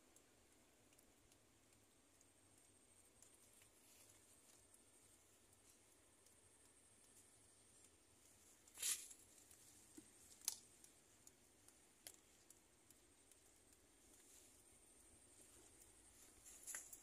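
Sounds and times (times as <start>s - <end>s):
faint ticks: 0.0s - 17.0s
leaves rustling: 8.2s - 10.9s, 14.0s - 17.0s.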